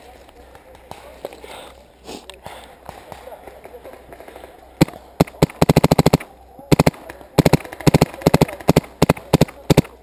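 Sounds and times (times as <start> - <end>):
paintball marker firing: 2.8 - 10.0.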